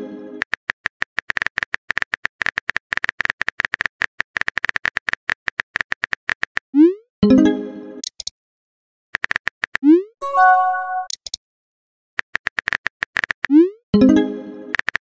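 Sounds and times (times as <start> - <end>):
ringing musical tone: 10.2 - 11.1.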